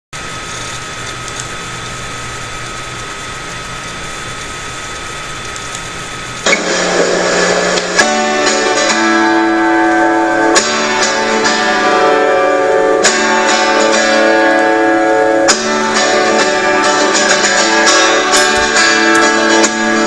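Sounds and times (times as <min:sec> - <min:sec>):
loud noisy sound: 0:00.2 - 0:20.0
microphone hiss and hum: 0:00.2 - 0:20.0
acoustic guitar chord ringing: 0:06.5 - 0:20.0.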